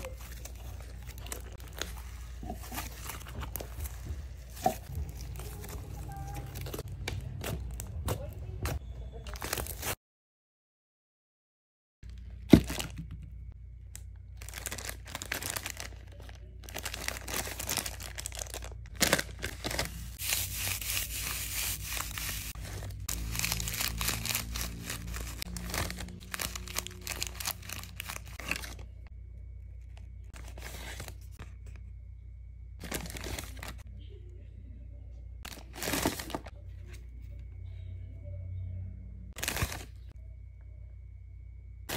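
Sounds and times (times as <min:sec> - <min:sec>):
plastic bags crinkling: 0:14.3 - 0:29.1, 0:32.8 - 0:33.8, 0:39.4 - 0:40.0.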